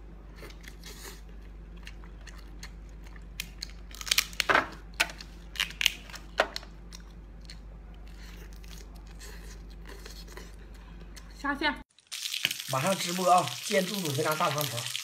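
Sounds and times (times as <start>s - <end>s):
lobster shell cracking: 3.3s - 7.0s.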